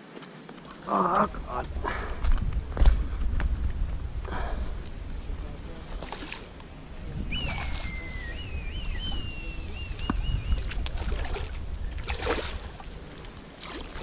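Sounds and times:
steady low rumble: 1.0s - 7.4s
high whistle: 7.3s - 10.6s.

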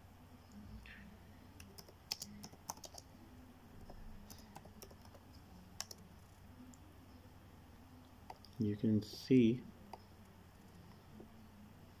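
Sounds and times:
typing on laptop keyboard: 1.6s - 3.1s, 3.8s - 6.0s.

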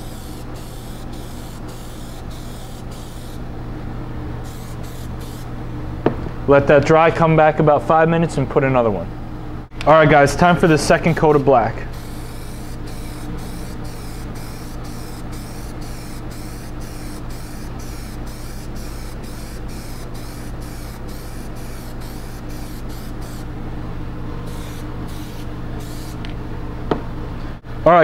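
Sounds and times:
aerosol can spraying bursts: 0.0s - 3.4s, 4.5s - 5.5s, 10.6s - 23.5s, 24.5s - 26.2s.

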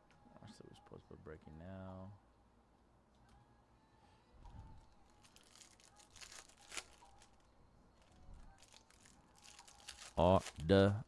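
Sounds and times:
foil wrappers crinkling: 4.8s - 11.0s.

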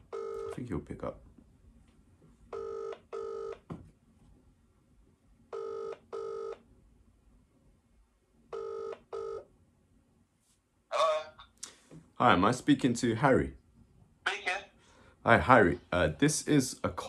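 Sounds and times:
telephone ringback tone: 0.1s - 0.6s, 2.5s - 3.6s, 5.5s - 6.6s, 8.5s - 9.4s.

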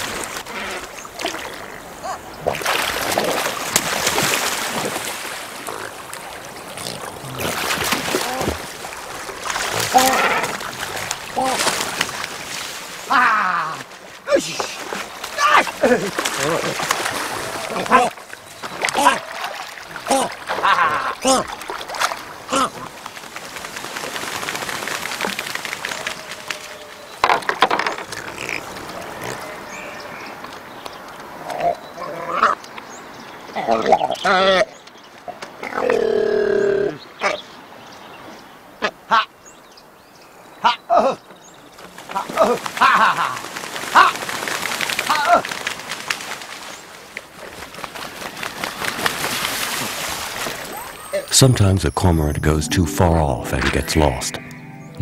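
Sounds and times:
birds splashing in water: 0.0s - 27.2s, 39.8s - 51.1s
wings beating on water: 21.6s - 26.7s, 41.9s - 50.7s.

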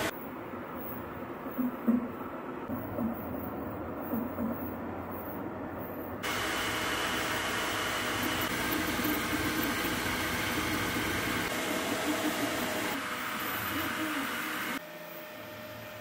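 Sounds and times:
cooling fan rushing: 6.2s - 14.8s
stepper motors whining: 6.2s - 14.8s.

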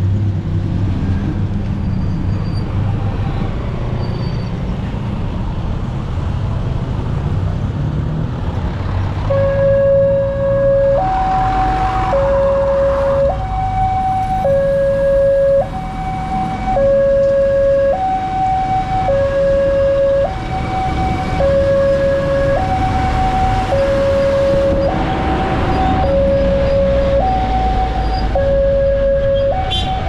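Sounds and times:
road traffic: 0.0s - 30.0s
two-tone crossing alarm: 9.3s - 30.0s.

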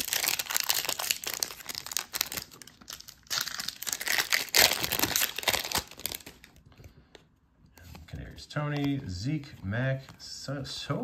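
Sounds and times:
plastic wrapper crinkling: 0.0s - 7.0s.

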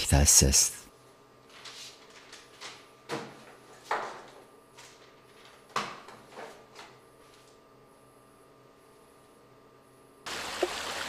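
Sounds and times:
rustling papers and objects: 1.1s - 7.6s.

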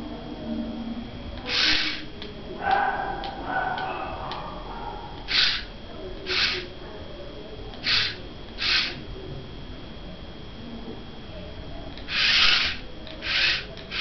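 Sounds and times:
small gear motors whirring: 1.4s - 2.2s, 5.2s - 6.8s, 7.8s - 9.0s, 12.0s - 14.0s.

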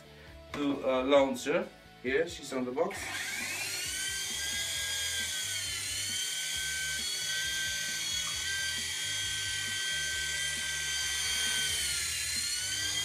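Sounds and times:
toy helicopter motors whining: 2.9s - 13.0s.

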